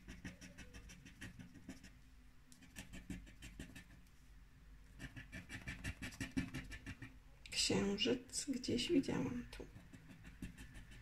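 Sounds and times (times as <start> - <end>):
plastic token scraping scratch card: 9.8 - 11.0.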